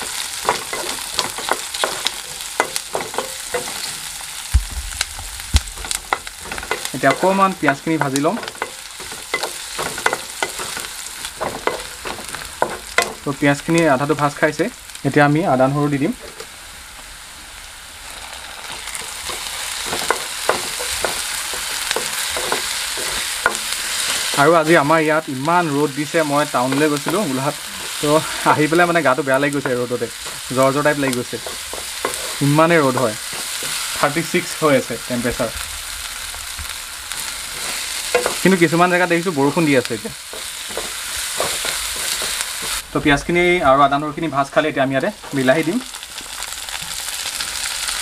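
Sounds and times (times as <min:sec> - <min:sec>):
onions sizzling in oil: 0:00.0 - 0:48.0
dull thump: 0:04.5 - 0:05.9
spatula scraping pan: 0:18.6 - 0:24.4, 0:26.6 - 0:34.4, 0:40.2 - 0:42.8.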